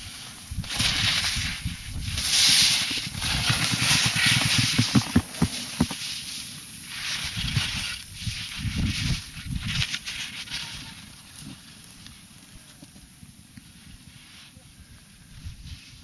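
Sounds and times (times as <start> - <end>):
wind buffeting microphone: 0.0 - 6.0, 7.2 - 10.0.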